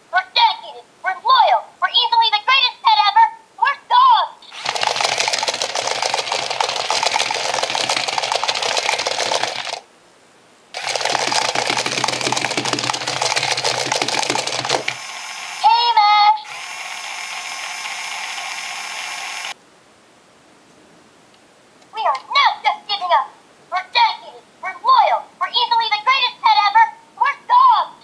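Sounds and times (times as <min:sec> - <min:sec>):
toy motor and gears whirring: 0:04.5 - 0:09.8, 0:10.8 - 0:19.6.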